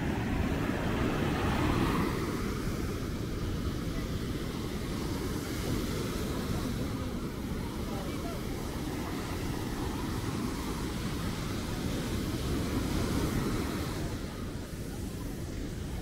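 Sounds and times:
ocean surf washing onto beach: 0.0s - 16.0s.

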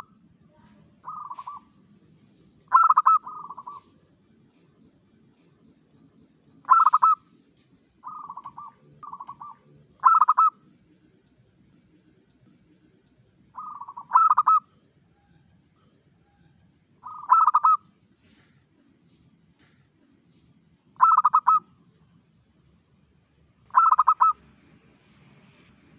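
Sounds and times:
dove cooing: 1.0s - 1.7s, 2.7s - 3.9s, 6.6s - 7.2s, 8.0s - 10.6s, 13.6s - 14.8s, 17.0s - 17.8s, 21.0s - 21.7s, 23.7s - 24.4s.

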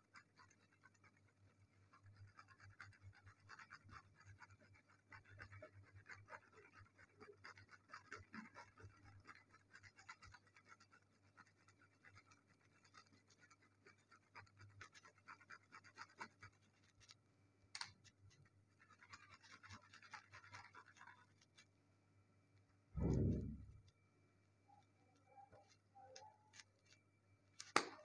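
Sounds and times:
faint scratching and rustling: 0.0s - 21.8s, 22.5s - 24.0s, 24.6s - 28.0s
faint low hum: 21.1s - 27.7s.

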